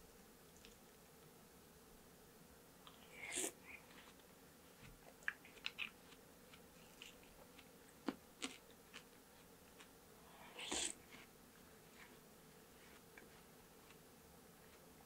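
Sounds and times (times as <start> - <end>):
wet chewing: 5.0 - 9.1.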